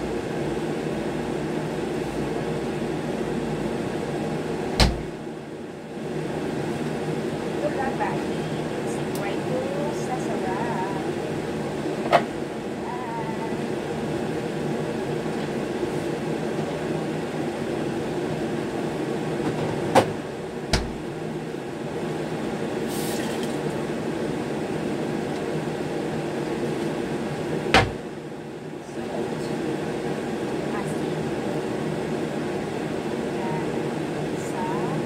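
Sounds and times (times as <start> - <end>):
dull thump: 4.8 - 5.1, 27.8 - 28.0.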